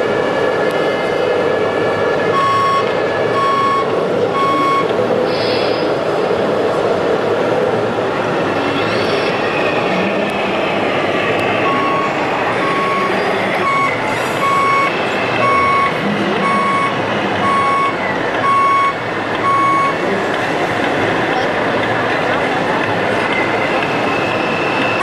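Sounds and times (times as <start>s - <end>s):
steady background noise: 0.0s - 25.0s
reversing beeper: 2.0s - 4.9s, 11.5s - 20.0s.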